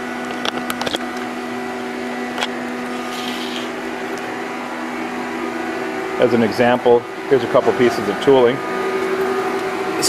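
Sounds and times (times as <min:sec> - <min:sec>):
lathe machine hum: 0:00.0 - 0:10.0.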